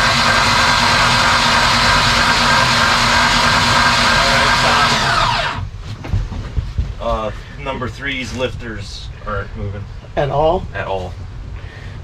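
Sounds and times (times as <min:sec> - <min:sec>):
electric starter whirring whine: 0:00.0 - 0:05.7.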